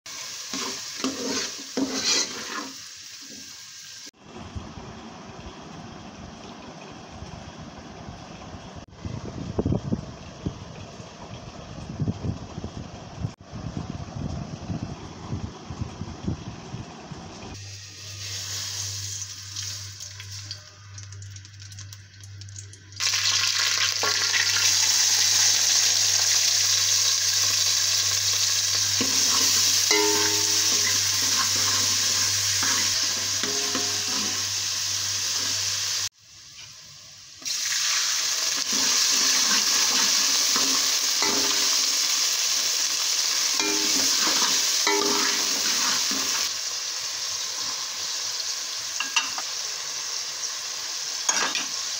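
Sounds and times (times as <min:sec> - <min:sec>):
onions sizzling in hot oil: 0:00.1 - 0:04.2, 0:17.5 - 0:51.9
spoon stirring and scraping pot: 0:00.5 - 0:02.8, 0:29.0 - 0:34.5.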